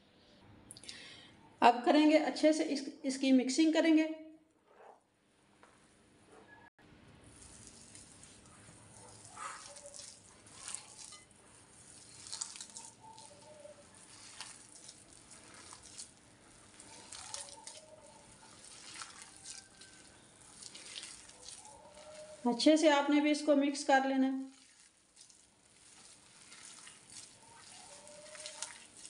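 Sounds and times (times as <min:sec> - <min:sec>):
hand squishing wet mixture: 0:07.2 - 0:29.0.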